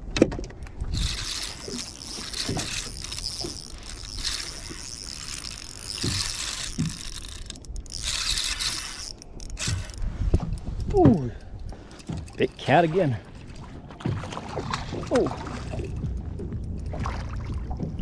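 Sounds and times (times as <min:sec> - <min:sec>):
fishing reel whirring: 0:00.9 - 0:10.7.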